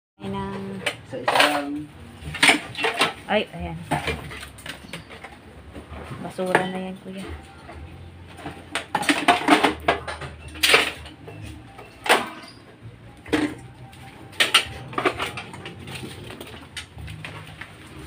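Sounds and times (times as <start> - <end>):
hard objects knocking together: 0.6 - 6.8, 7.4 - 12.6.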